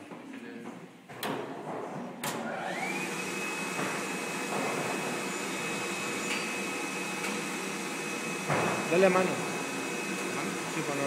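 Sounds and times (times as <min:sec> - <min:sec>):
machine motor whirring and whining: 0:02.3 - 0:11.0.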